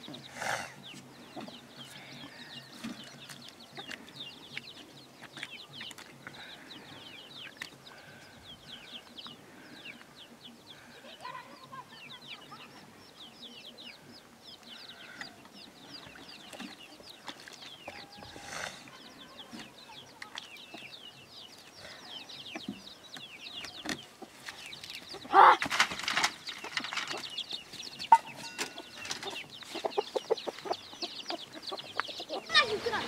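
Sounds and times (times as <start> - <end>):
chickens clucking: 0.0 - 33.0.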